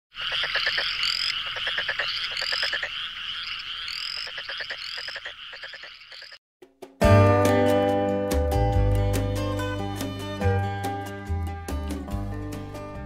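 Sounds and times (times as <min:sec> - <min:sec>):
frogs calling: 0:00.1 - 0:06.4.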